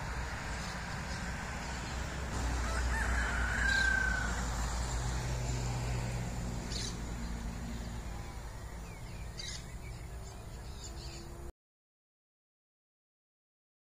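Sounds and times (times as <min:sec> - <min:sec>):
birds chirping: 0:00.0 - 0:11.5.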